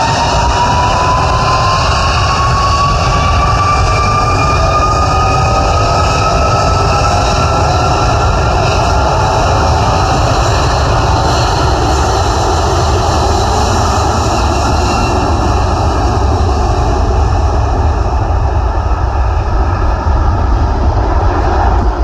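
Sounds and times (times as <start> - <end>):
jet engines rumbling: 0.0 - 22.0.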